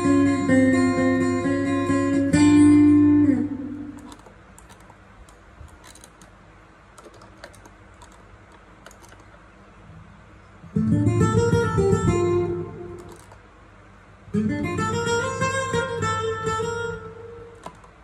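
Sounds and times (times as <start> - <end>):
pedal knobs and buttons clicking: 4.0 - 6.4, 7.0 - 9.4, 13.0 - 13.4, 17.6 - 18.0.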